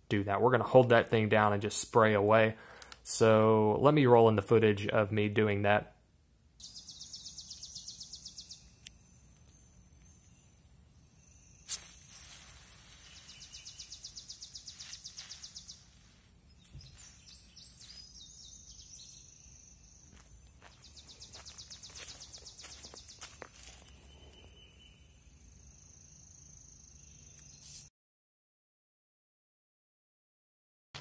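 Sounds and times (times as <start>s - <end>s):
insects trilling: 6.6s - 27.8s
pepper spray hissing: 11.5s - 18.7s
pepper spray pop: 11.6s - 14.2s.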